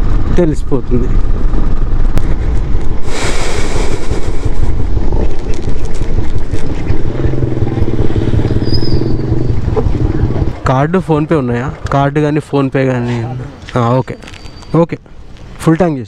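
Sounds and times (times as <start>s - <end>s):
motorcycle engine running: 0.0s - 11.9s
wind buffeting microphone: 0.0s - 11.9s.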